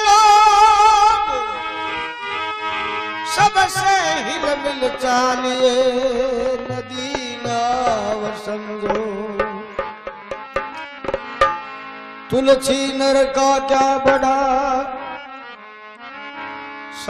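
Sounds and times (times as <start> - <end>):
harmonium melody: 0.0 - 17.0
hand drum beats: 6.8 - 11.8.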